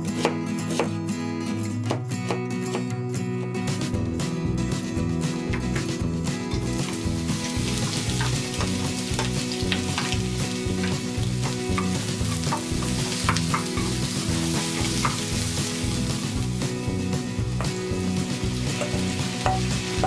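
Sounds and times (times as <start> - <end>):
onions sizzling in hot oil: 6.5 - 20.0
wooden spatula scraping and knocking: 10.8 - 15.3.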